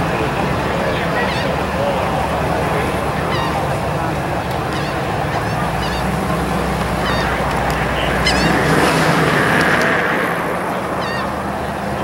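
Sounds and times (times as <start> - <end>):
car engine low rumble: 0.0 - 12.0
high bird chirps: 6.9 - 8.7.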